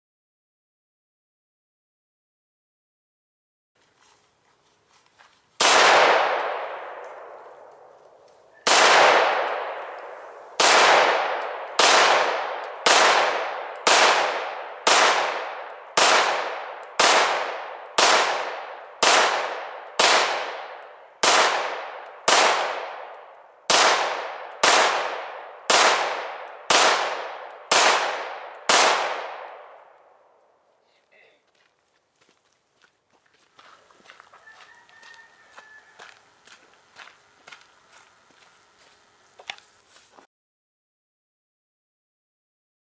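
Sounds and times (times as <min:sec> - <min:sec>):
pistol shots with echo: 0:05.6 - 0:30.2.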